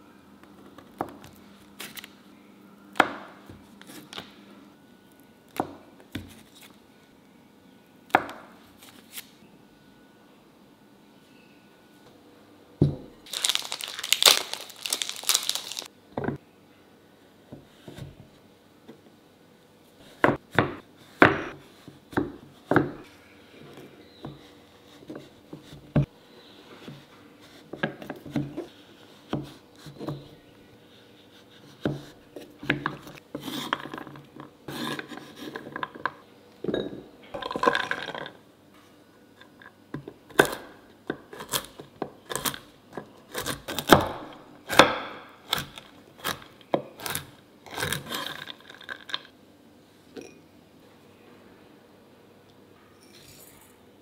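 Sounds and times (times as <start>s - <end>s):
crinkling rustle: 13.2s - 15.9s
knife chopping chocolate on wood: 40.3s - 47.2s
knife chopping nuts: 40.3s - 48.9s.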